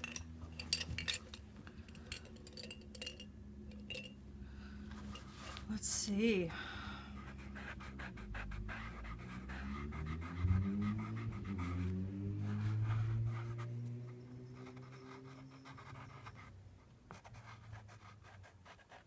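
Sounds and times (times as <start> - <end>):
low drawn-out hum: 0.0 - 17.2
pencil scratching on paper: 7.2 - 13.8, 14.4 - 16.5, 17.1 - 19.0.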